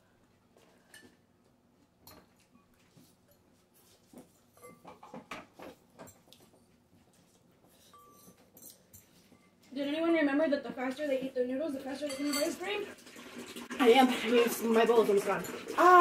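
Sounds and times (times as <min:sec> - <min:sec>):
forks clicking in glass bowls: 0:07.9 - 0:09.2, 0:12.0 - 0:12.6.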